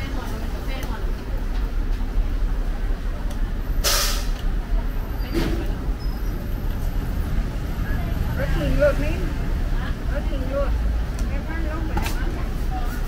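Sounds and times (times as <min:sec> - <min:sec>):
low rumble of street traffic: 0:00.0 - 0:13.0
short sharp hiss: 0:03.8 - 0:04.4.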